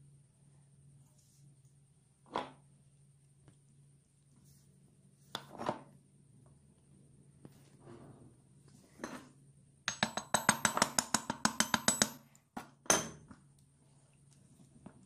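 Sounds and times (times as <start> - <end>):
small hammer tapping wood: 9.9 - 12.2.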